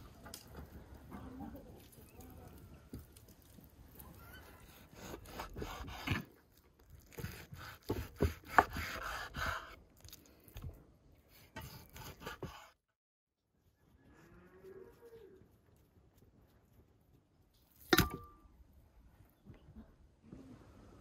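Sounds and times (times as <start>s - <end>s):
knife slicing meat onto wooden board: 4.7s - 6.3s, 7.0s - 9.8s, 11.3s - 12.8s.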